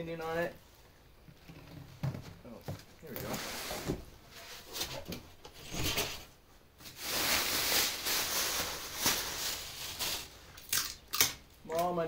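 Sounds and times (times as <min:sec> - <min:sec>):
plastic bag rustling: 0:02.2 - 0:10.6.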